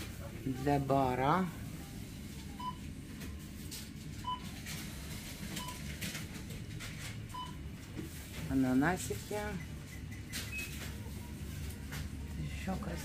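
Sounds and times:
low store hum: 0.0 - 13.0
barcode scanner beeps: 9.3 - 11.1.

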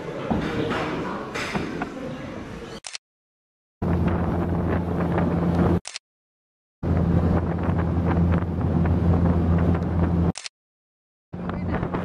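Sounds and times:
wind buffeting microphone: 6.8 - 10.3, 11.4 - 12.0.

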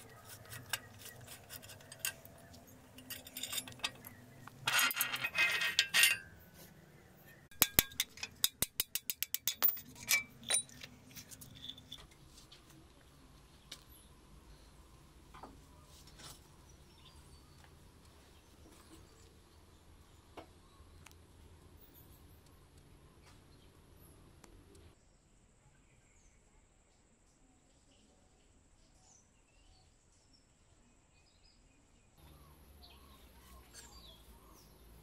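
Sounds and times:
metal parts clinking and clattering: 0.0 - 6.4, 7.5 - 12.2.

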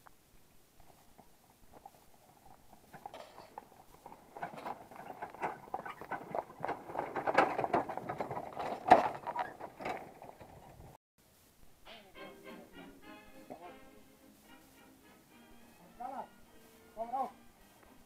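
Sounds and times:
horse hooves clopping on dirt: 0.0 - 11.0
wagon rattling: 0.8 - 11.0.

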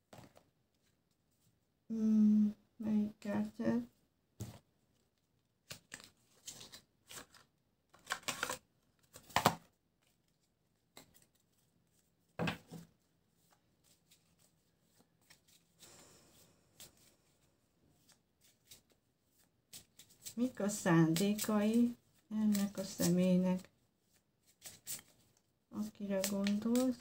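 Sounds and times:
cards being shuffled: 5.6 - 12.0, 13.4 - 15.8, 18.0 - 23.2, 24.0 - 27.0.

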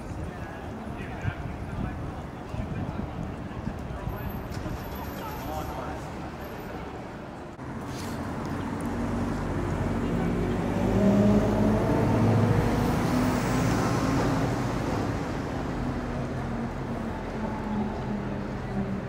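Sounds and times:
general traffic noise: 0.0 - 19.0
vehicle engine passing: 7.9 - 16.2.

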